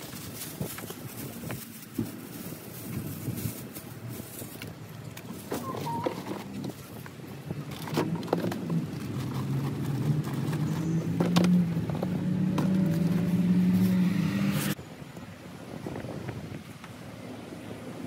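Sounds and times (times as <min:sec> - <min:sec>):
items being handled: 0:00.0 - 0:14.2
vehicle engine humming: 0:00.0 - 0:18.0.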